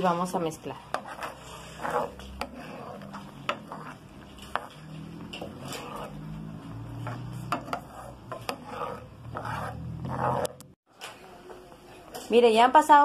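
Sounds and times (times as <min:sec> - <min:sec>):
spoon scraping a frying pan: 0:00.6 - 0:10.8.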